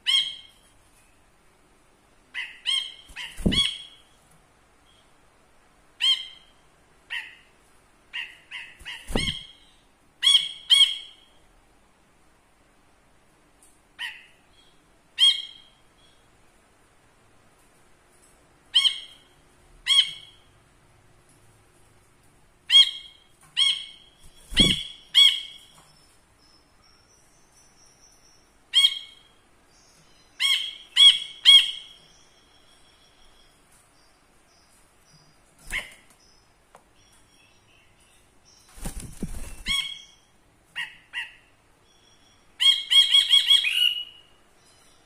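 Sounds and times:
bulbul calling: 2.4 - 4.0, 8.2 - 11.1, 22.7 - 25.6.

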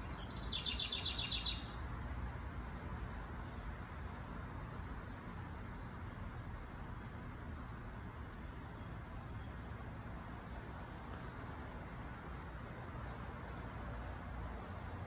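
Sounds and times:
faint high bird chirps: 0.0 - 1.8
low rumble of distant traffic: 0.0 - 15.0.

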